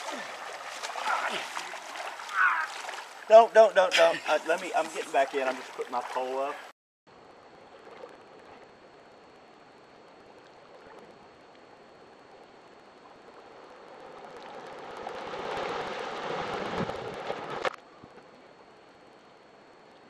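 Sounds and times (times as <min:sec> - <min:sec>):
water lapping and splashing: 0:00.0 - 0:06.7, 0:07.5 - 0:08.8, 0:10.1 - 0:17.8.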